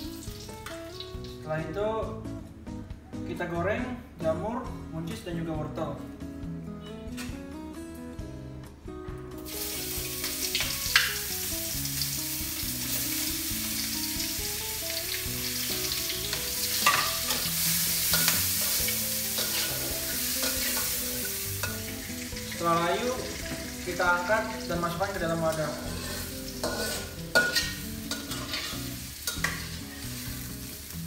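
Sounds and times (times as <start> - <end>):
vegetables sizzling in hot oil: 0.0 - 1.5, 9.4 - 31.0
spatula scraping a wok: 15.9 - 21.8, 25.7 - 30.7.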